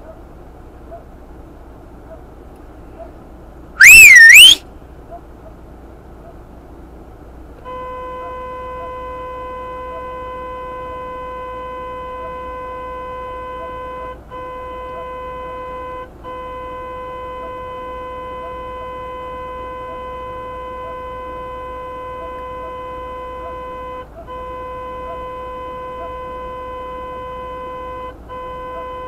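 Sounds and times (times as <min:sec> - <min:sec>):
car horn blast: 0:03.8 - 0:04.6, 0:07.6 - 0:29.0.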